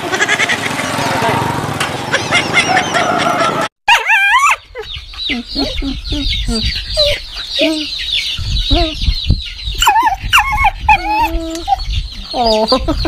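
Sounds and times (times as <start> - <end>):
wavering pitched calls: 2.1 - 13.0
chickens clucking: 4.7 - 13.0.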